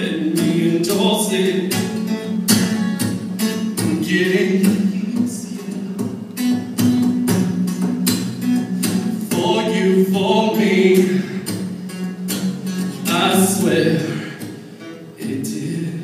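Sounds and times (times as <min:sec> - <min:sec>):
acoustic guitar strumming: 0:00.0 - 0:16.0
person singing: 0:03.8 - 0:06.1, 0:09.2 - 0:11.5.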